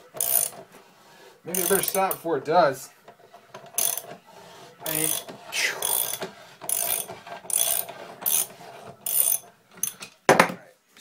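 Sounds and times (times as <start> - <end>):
ratchet wrench clicking: 0.2 - 0.6, 1.5 - 2.2, 3.7 - 4.1, 4.8 - 10.0.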